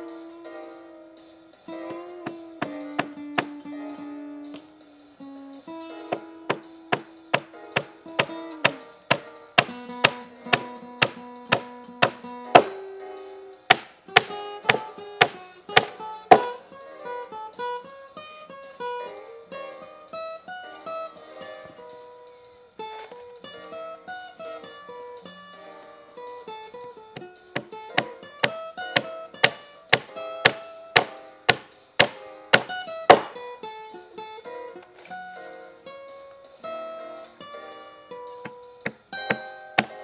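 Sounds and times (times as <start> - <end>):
acoustic guitar music: 0.0 - 40.0
sharp knocks: 2.2 - 3.6, 6.1 - 12.8, 13.7 - 16.6, 27.2 - 33.4, 38.4 - 40.0.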